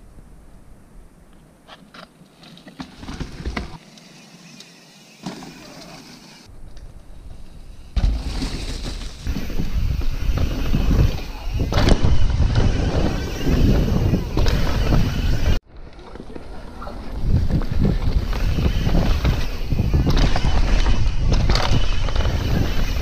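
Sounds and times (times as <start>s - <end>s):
bicycle tyre rumble on dirt: 2.3s - 23.0s
wind buffeting microphone: 9.2s - 15.6s, 16.8s - 23.0s.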